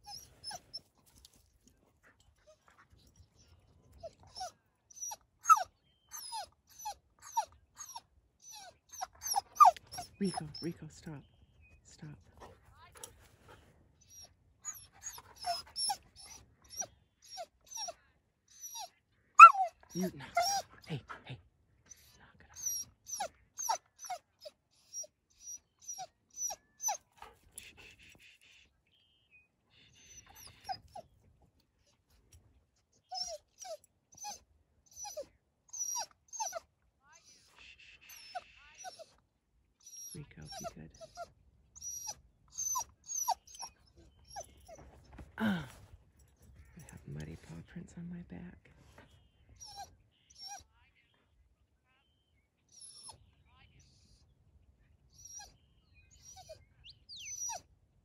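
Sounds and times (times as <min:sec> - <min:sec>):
dog whining and yelping: 0:00.0 - 0:01.2, 0:02.4 - 0:10.2, 0:14.0 - 0:20.7, 0:21.9 - 0:27.9, 0:30.1 - 0:31.2, 0:32.9 - 0:39.2, 0:39.8 - 0:45.7, 0:49.5 - 0:50.6, 0:52.7 - 0:53.2, 0:55.2 - 0:57.7.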